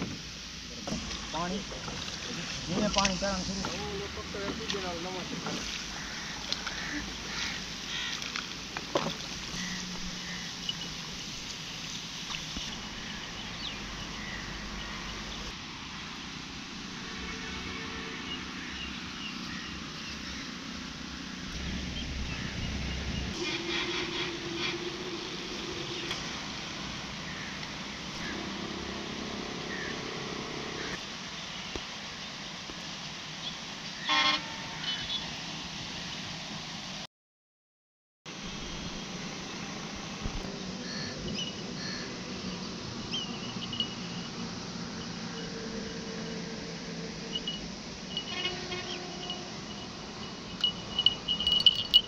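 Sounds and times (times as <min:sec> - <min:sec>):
water splashing around boat: 0:00.0 - 0:13.8
traffic hum on bridge: 0:00.0 - 0:36.8, 0:38.7 - 0:52.0
engine-like tone: 0:21.5 - 0:31.0, 0:43.2 - 0:52.0.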